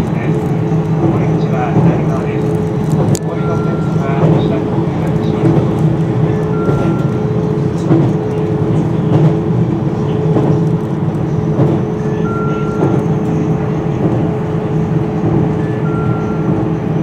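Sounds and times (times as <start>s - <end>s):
track clicks: 0.0s - 17.0s
train wheels rumbling on rail: 0.0s - 17.0s
two-tone beep: 6.5s - 7.3s, 12.2s - 13.0s, 15.6s - 16.5s.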